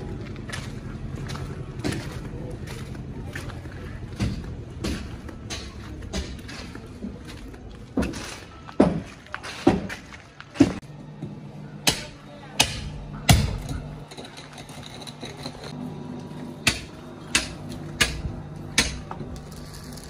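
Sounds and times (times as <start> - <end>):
steady low hum: 10.7 - 20.0.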